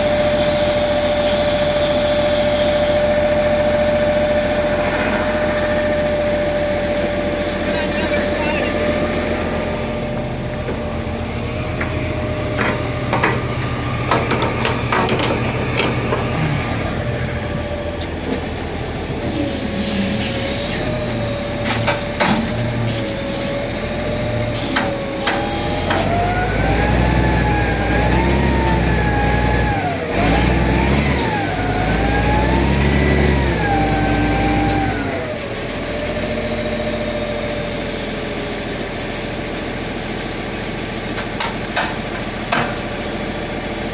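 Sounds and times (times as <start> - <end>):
heavy machine engine running: 0.0 - 43.9
metal knocks and clanks: 12.5 - 16.3.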